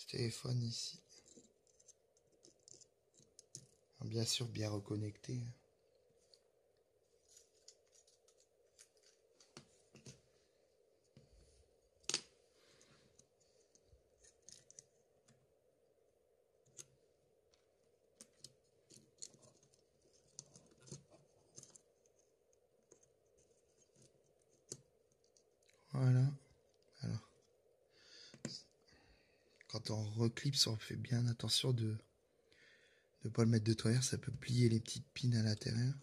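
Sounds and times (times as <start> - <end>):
small clicks and scrapes of fingers: 1.1 - 3.8, 13.1 - 15.4, 16.6 - 17.6, 18.2 - 25.8.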